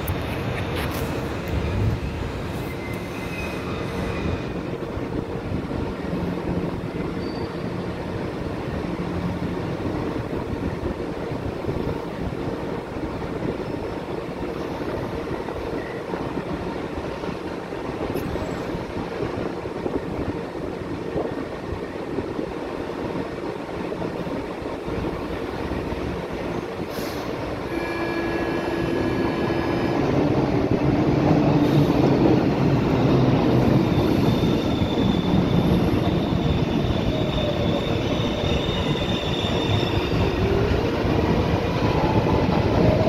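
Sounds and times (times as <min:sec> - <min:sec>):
metro train rumbling: 0:00.0 - 0:43.0
faint high squeal: 0:02.6 - 0:04.4, 0:07.1 - 0:07.7, 0:33.9 - 0:40.4.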